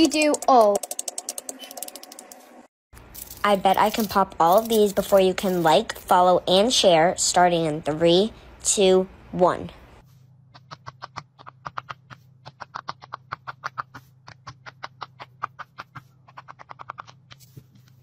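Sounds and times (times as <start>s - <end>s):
silicone fidget toy popping: 0.0s - 2.4s, 10.6s - 17.4s.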